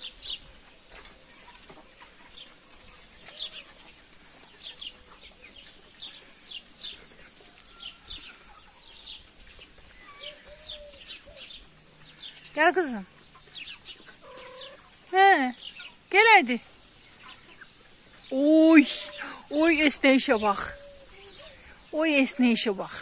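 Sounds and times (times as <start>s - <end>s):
faint hens clucking: 0.0s - 16.1s
small birds chirping: 0.0s - 23.0s.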